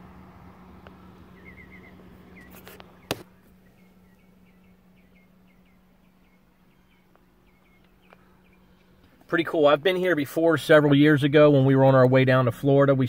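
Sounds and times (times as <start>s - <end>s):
low hum: 0.0s - 13.0s
small bird chirping: 0.8s - 9.2s.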